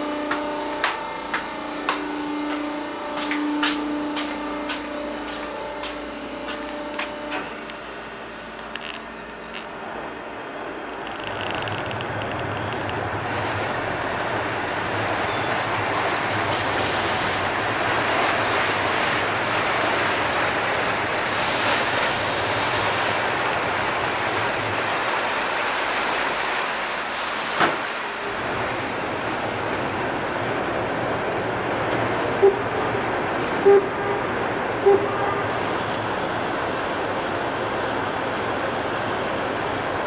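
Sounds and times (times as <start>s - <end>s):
low engine drone: 0.0s - 40.0s
water rushing along hull: 0.0s - 40.0s.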